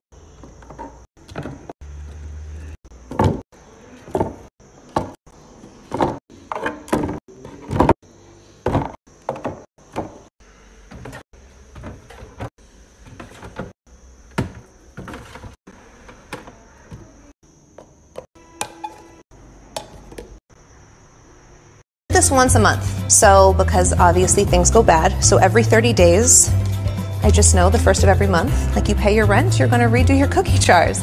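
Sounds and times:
food containers knocking in plastic bins: 0.4 - 2.3, 3.0 - 8.0, 8.6 - 10.3, 10.9 - 19.2.

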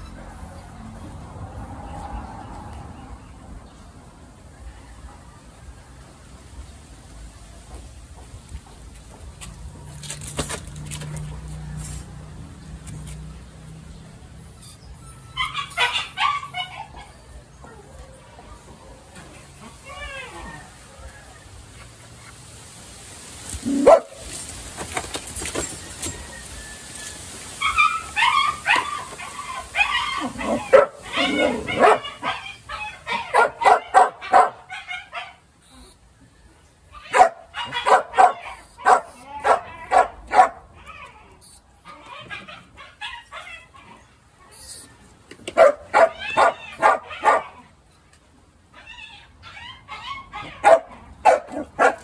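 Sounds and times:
dog barking and yipping: 14.7 - 17.8, 23.6 - 24.4, 27.5 - 35.4, 36.9 - 41.3, 41.9 - 44.1, 45.5 - 47.7, 48.7 - 52.0.

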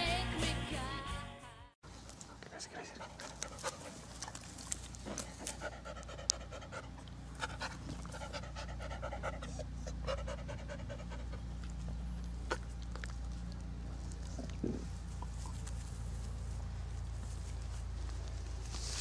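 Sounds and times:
dog panting: 2.1 - 15.8.

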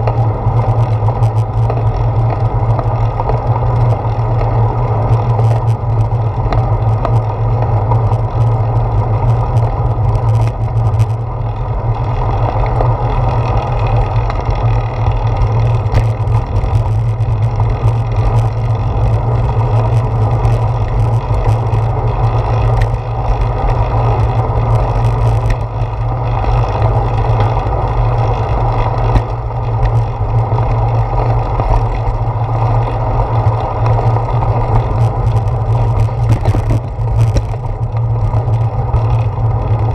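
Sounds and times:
faint clicks and rattles: 0.0 - 39.9
wind and road rumble: 0.0 - 39.9.

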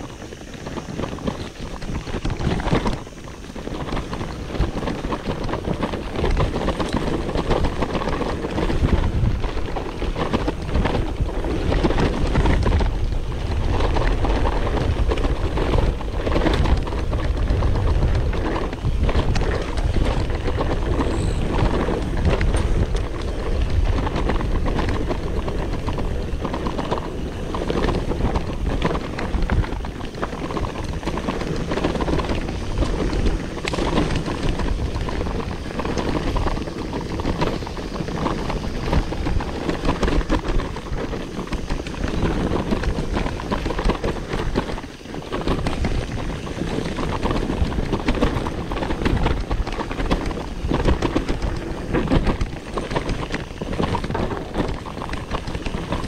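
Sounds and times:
bike knocking and rattling: 0.0 - 56.0
tyres running over dirt: 0.0 - 56.0
wind buffeting microphone: 0.0 - 56.0.

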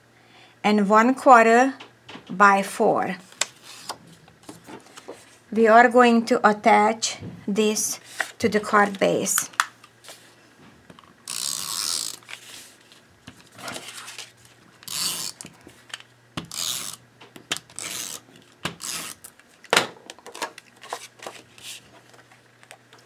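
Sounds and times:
tape runner rasping on paper: 11.3 - 12.8, 13.5 - 15.6, 16.4 - 19.3.

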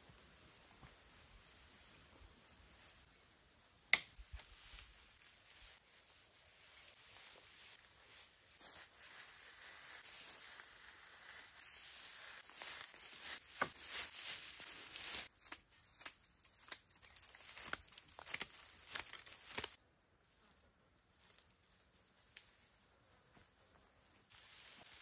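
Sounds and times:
dry vegetation rustling and crinkling: 0.0 - 25.0
sharp crackles and snaps: 15.1 - 19.8.

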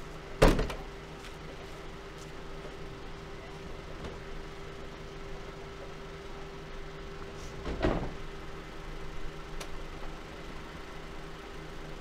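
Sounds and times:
van engine idling: 0.0 - 12.0
van door slamming: 0.4 - 0.8, 7.6 - 8.2.

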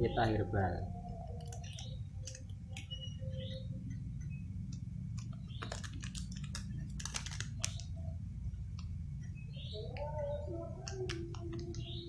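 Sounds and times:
steady low hum: 0.0 - 12.0
powder sachet crinkling and tearing: 5.2 - 8.0.

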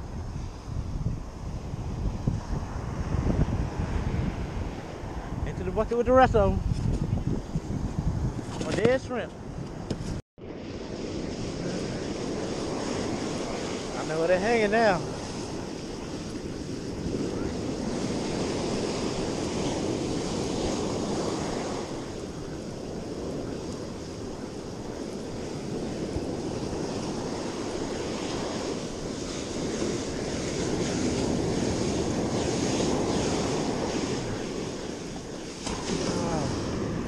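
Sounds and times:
wind buffeting microphone: 0.0 - 37.0
ocean surf breaking: 10.4 - 37.0.

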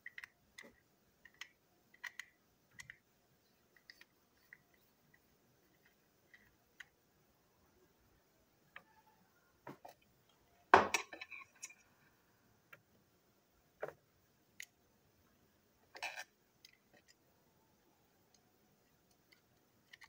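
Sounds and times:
small parts clicking and tapping: 0.0 - 3.1, 3.7 - 7.0, 9.8 - 11.9, 15.8 - 17.2, 18.2 - 20.0.

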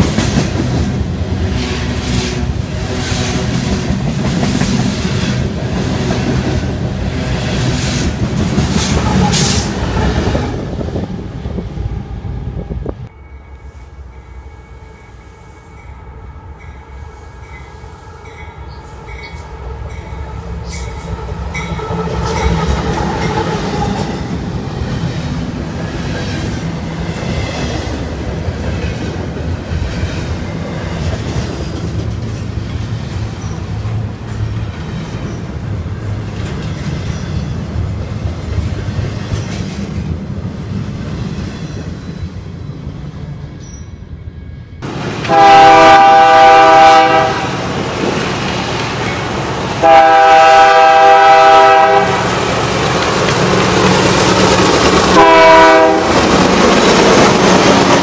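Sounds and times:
freight locomotives approaching: 0.0 - 58.0
freight cars rumbling: 52.0 - 58.0.

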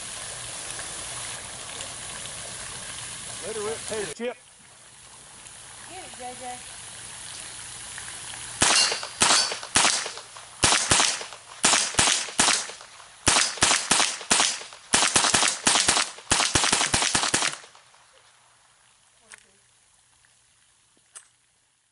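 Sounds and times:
rapid pistol gunfire: 8.6 - 17.7.

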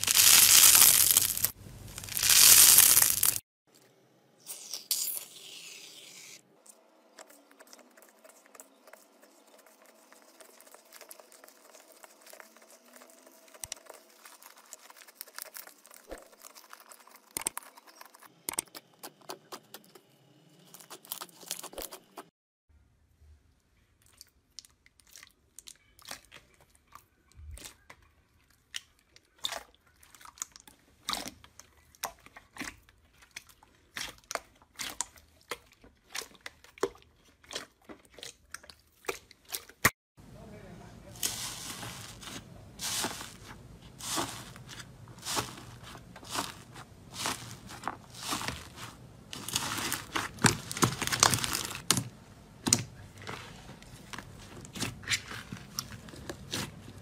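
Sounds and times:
hands squeezing slime: 0.0 - 3.4, 7.2 - 18.3, 41.2 - 52.0.

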